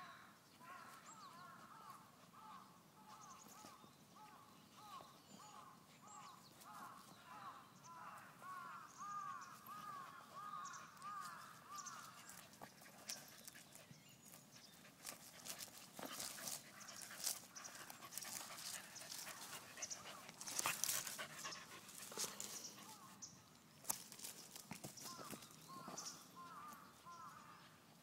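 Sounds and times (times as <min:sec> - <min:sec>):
crow cawing: 0:08.0 - 0:11.9
rustling in dry leaves: 0:11.0 - 0:23.2, 0:23.8 - 0:27.5.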